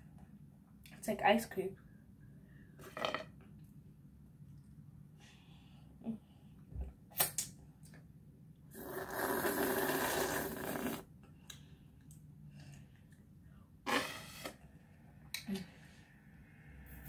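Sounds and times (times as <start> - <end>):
slurping through a straw: 8.7 - 11.0, 13.9 - 14.6.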